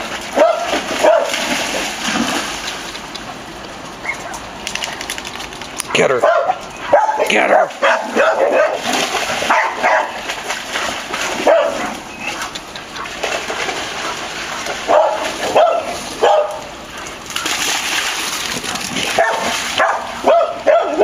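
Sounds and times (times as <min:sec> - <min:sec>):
paws splashing in water: 0:00.0 - 0:21.0
dogs barking: 0:00.3 - 0:01.6, 0:04.0 - 0:05.1, 0:05.8 - 0:10.3, 0:11.3 - 0:13.2, 0:14.0 - 0:17.3, 0:19.0 - 0:21.0.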